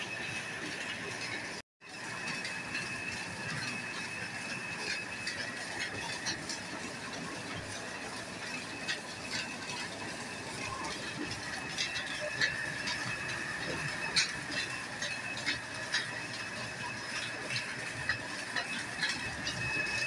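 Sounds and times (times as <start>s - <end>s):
oil press machine whining: 0.0s - 20.0s.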